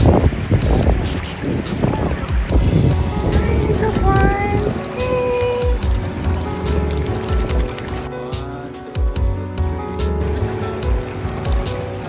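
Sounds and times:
background music with steady beat: 0:00.0 - 0:12.0.

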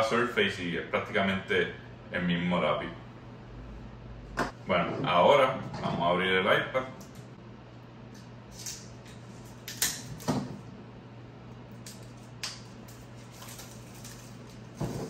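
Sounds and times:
plastic wrap ripping and crinkling: 0:12.0 - 0:15.0.

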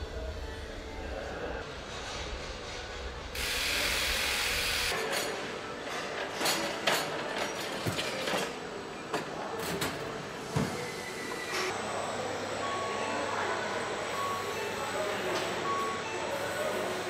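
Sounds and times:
factory background noise: 0:00.0 - 0:17.0
hiss: 0:03.4 - 0:04.9.

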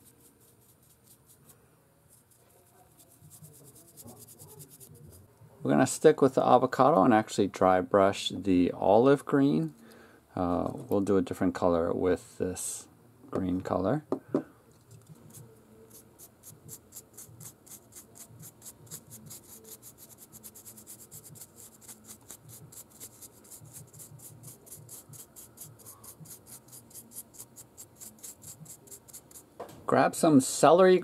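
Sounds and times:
brush scratchy strokes: 0:00.0 - 0:05.3, 0:14.9 - 0:29.5.

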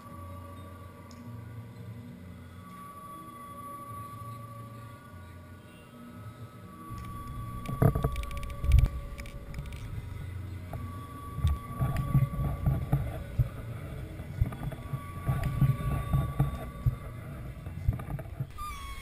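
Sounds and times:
wind rumbling on microphone: 0:06.9 - 0:19.0.

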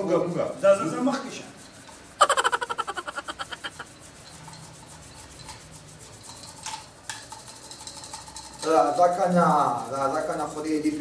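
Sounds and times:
hands rubbing object: 0:02.2 - 0:03.9
rapidly pulsing pitched tone: 0:02.2 - 0:03.9.

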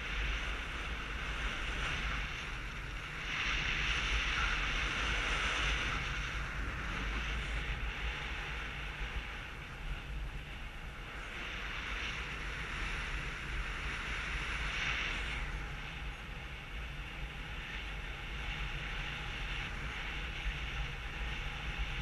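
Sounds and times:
wind rumbling on microphone: 0:00.0 - 0:22.0.

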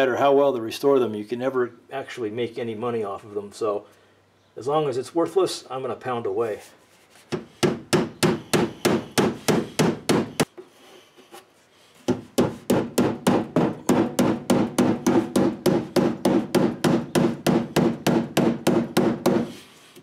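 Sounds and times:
hammer pounding sheet steel: 0:12.1 - 0:19.6.

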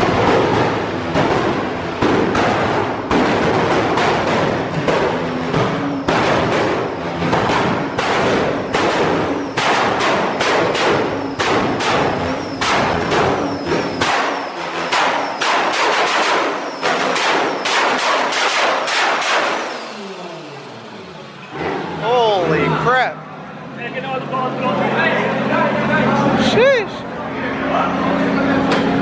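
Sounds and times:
car exhaust popping and banging: 0:00.0 - 0:22.0.

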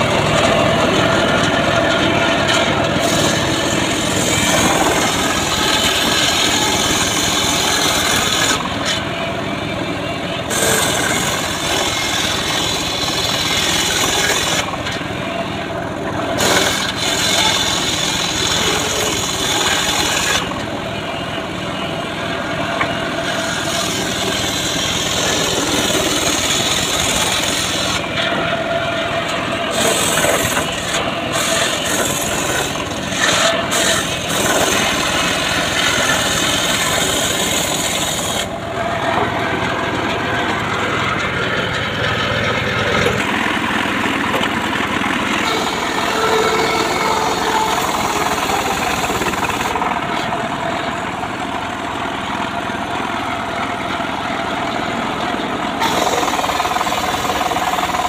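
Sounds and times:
sawmill engine running: 0:00.0 - 0:58.0
saw blade hissing through wood: 0:03.0 - 0:09.0, 0:10.5 - 0:14.7, 0:16.4 - 0:20.6, 0:23.2 - 0:28.1, 0:29.7 - 0:38.5, 0:55.8 - 0:58.0.

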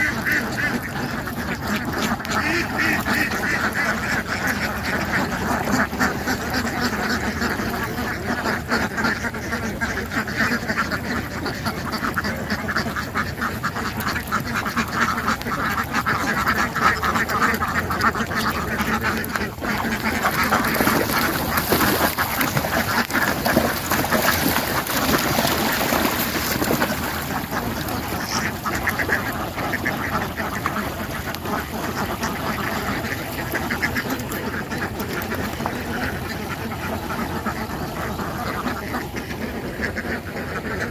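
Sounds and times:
ducks quacking: 0:00.0 - 0:40.9.

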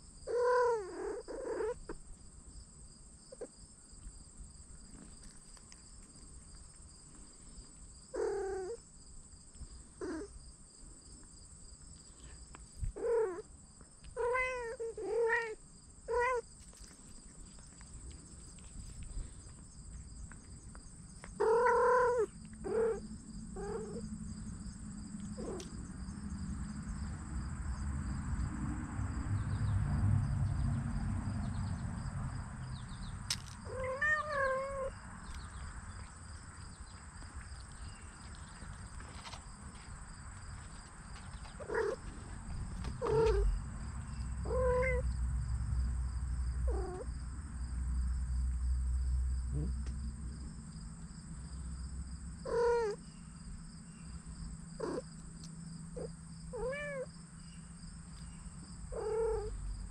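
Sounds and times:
kittens meowing: 0:00.3 - 0:02.0, 0:08.1 - 0:08.8, 0:12.9 - 0:13.4, 0:14.2 - 0:16.5, 0:21.4 - 0:23.0, 0:23.6 - 0:24.0, 0:25.3 - 0:25.7, 0:33.6 - 0:35.0, 0:41.4 - 0:42.1, 0:42.9 - 0:43.6, 0:44.4 - 0:45.1, 0:46.7 - 0:47.1, 0:52.4 - 0:53.0, 0:54.8 - 0:55.1, 0:56.0 - 0:57.1, 0:58.9 - 0:59.6.

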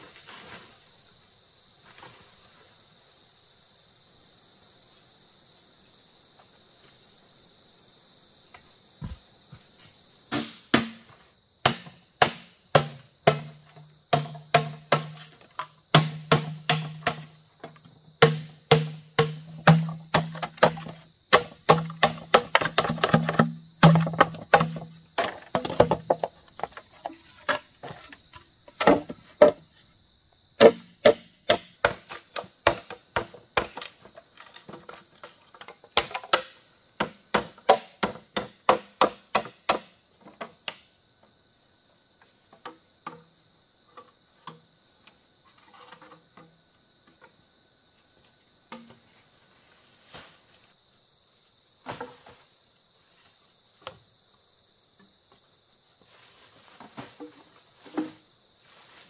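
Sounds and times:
insects droning: 0:00.0 - 0:59.0
bamboo being chopped: 0:10.3 - 0:26.7, 0:30.6 - 0:40.9.

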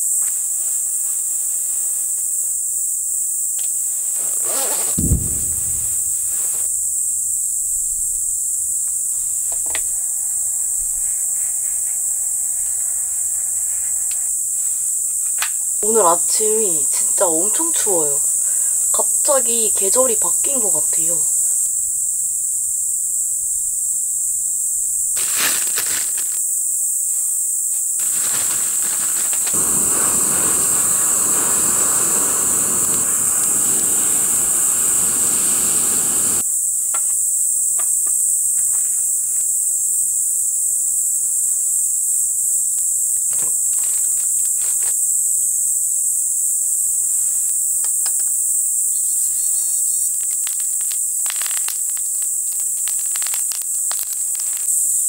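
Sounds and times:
rustling noise: 0:00.0 - 0:07.2, 0:08.0 - 0:19.0, 0:25.1 - 0:36.4, 0:42.8 - 0:45.6, 0:46.8 - 0:48.4, 0:49.0 - 0:55.0
insects chirring: 0:00.0 - 0:55.0.

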